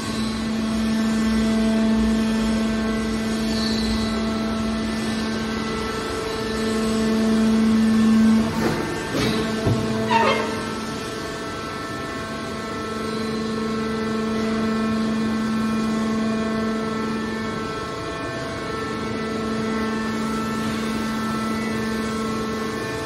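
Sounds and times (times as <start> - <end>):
hydraulic power pack humming: 0.0 - 12.0.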